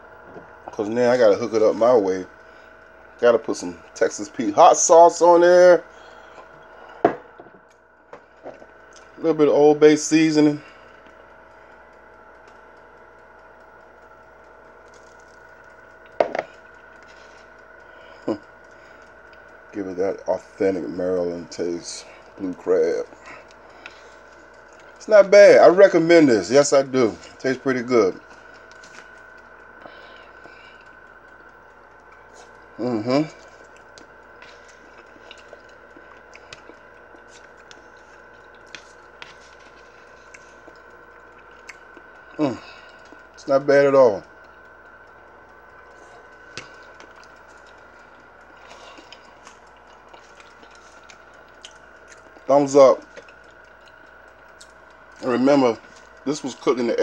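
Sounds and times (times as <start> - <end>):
faint appliance hum: 0.0 - 57.0
chewing: 7.7 - 9.2, 21.5 - 25.0, 28.2 - 43.4, 44.2 - 55.2, 55.8 - 56.3.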